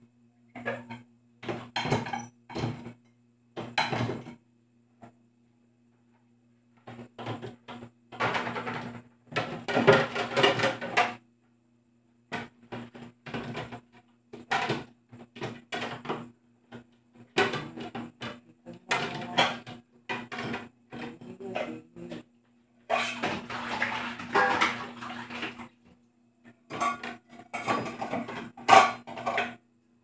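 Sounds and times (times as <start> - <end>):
plates and dishes clattering: 0.6 - 3.0, 3.6 - 4.4, 8.2 - 11.2, 14.4 - 22.2, 22.9 - 25.6, 26.7 - 29.6.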